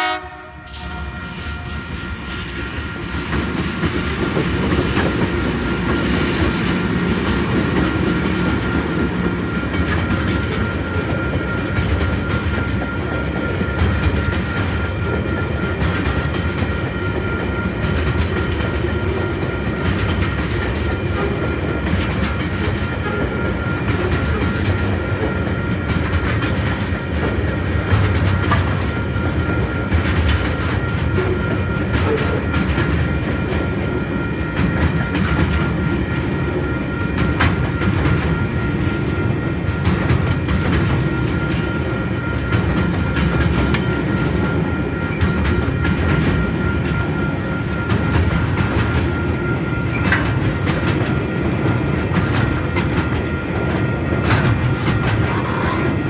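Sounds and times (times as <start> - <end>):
freight train passing: 0.0 - 56.0
wheels clacking over rail joints: 1.8 - 33.9.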